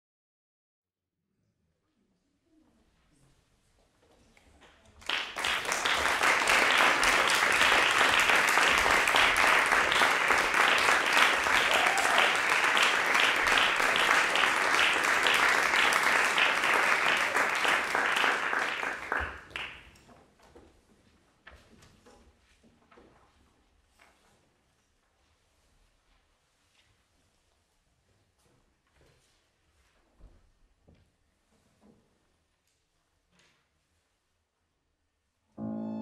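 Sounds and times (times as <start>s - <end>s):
audience applauding: 5.0s - 19.9s.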